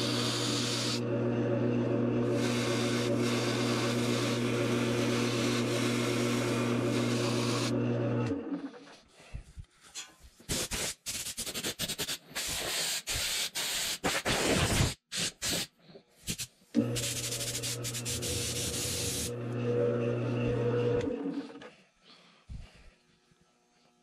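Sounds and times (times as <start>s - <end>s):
wood lathe motor humming: 0.0s - 8.9s, 16.8s - 21.7s.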